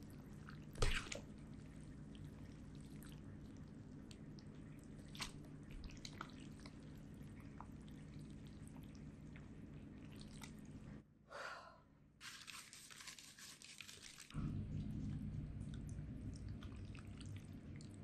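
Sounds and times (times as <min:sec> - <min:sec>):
wet squelches of pasta tossed: 0:00.2 - 0:11.0, 0:12.2 - 0:18.0
low hum: 0:14.3 - 0:18.0.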